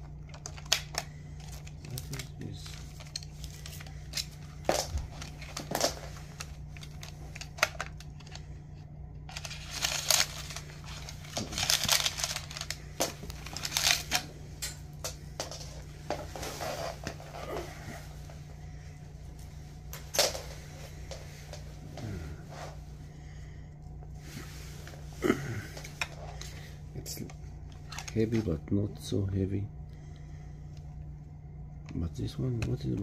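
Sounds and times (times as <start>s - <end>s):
rustling and crinkling: 0.0s - 28.7s
steady low hum: 0.0s - 33.0s.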